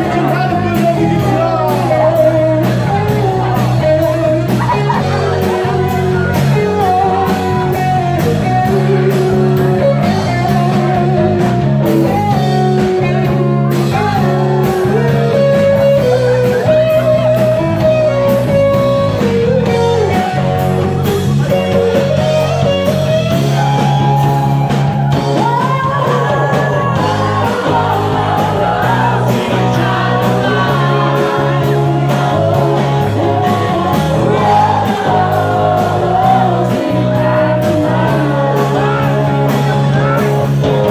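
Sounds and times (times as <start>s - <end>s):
drum kit beat: 0.0s - 40.9s
electric guitar: 0.0s - 40.9s
woman singing: 25.4s - 39.4s.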